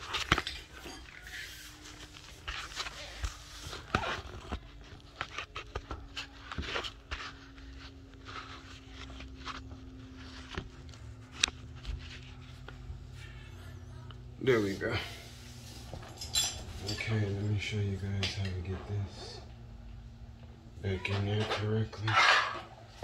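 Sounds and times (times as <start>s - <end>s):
rustling near microphone: 0.0s - 20.5s
faint steady hum: 0.0s - 23.0s.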